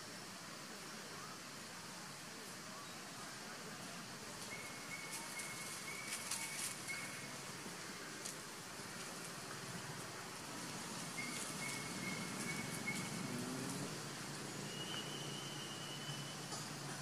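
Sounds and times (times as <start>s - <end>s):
faint steady hiss: 0.0s - 17.0s
thin high whistling note: 14.6s - 16.5s.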